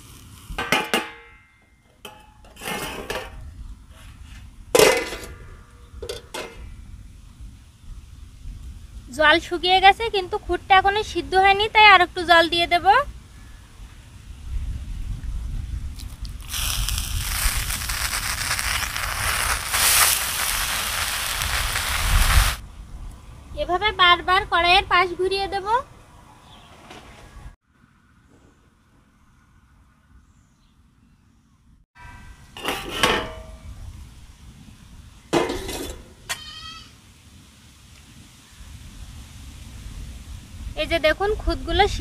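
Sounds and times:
rice sizzling in hot pan: 0:00.0 - 0:00.6, 0:16.0 - 0:22.6
metal lid clattering on pan: 0:00.6 - 0:01.3, 0:02.1 - 0:03.4, 0:04.8 - 0:06.6, 0:32.6 - 0:33.5, 0:35.4 - 0:36.1.

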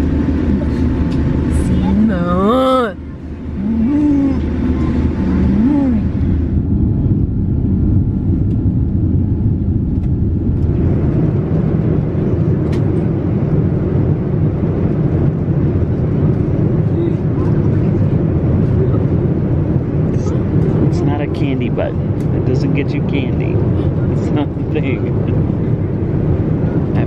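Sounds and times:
jet engines and airflow rumble: 0:00.0 - 0:27.0
person humming: 0:03.6 - 0:04.5, 0:05.4 - 0:06.1.

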